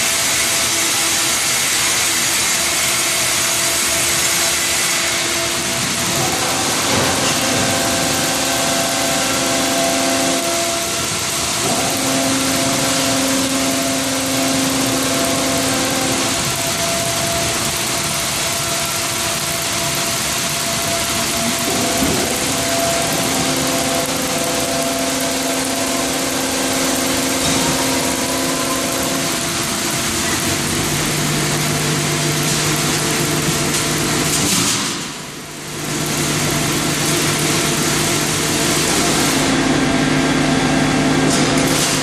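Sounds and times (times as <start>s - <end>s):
band saw mill machine noise: 0.0s - 42.0s
hum of motors: 3.1s - 34.5s.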